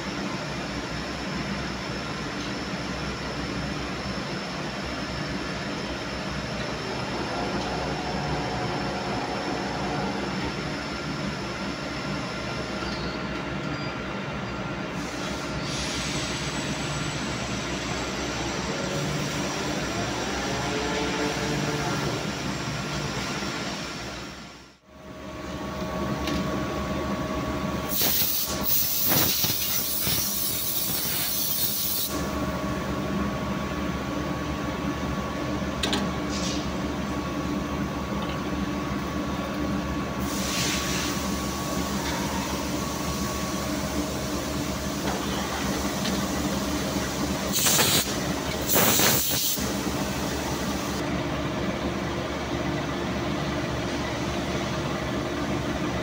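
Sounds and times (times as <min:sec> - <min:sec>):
machinery hum with held tones: 0:00.0 - 0:56.0
loud hiss bursts: 0:27.9 - 0:32.2, 0:40.2 - 0:41.9, 0:46.3 - 0:51.0.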